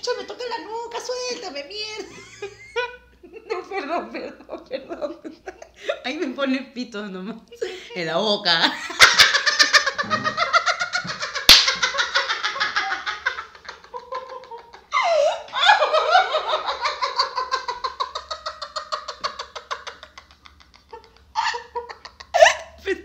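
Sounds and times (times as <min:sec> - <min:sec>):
man and woman laughing: 0:08.8 - 0:23.0.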